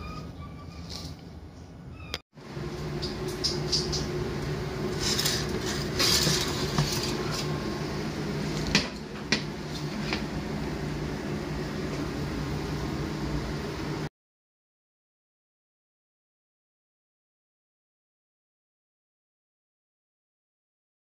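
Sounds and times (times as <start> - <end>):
electric oven humming: 1.3 - 14.1
metal grill tray scraping: 4.8 - 7.6.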